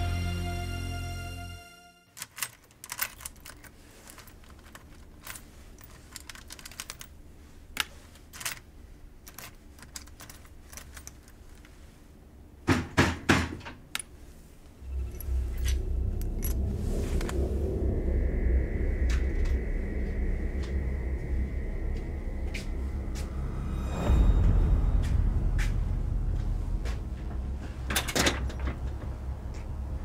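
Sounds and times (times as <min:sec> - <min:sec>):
low rumbling drone: 0:14.6 - 0:30.0.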